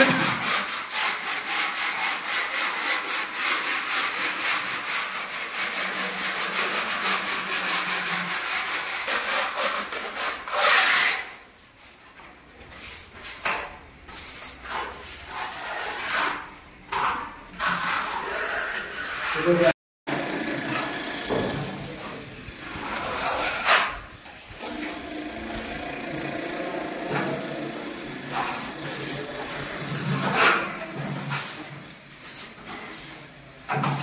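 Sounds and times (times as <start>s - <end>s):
putty knives scraping ceiling: 0.0s - 11.6s, 12.6s - 19.7s, 20.7s - 34.0s.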